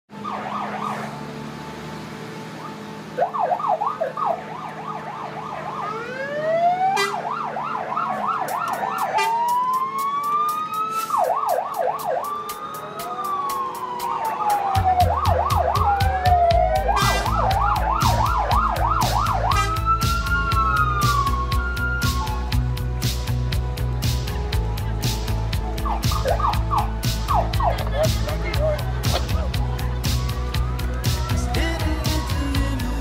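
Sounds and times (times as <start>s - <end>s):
fire truck sirens: 0.1s - 33.0s
steady low beat: 11.2s - 33.0s.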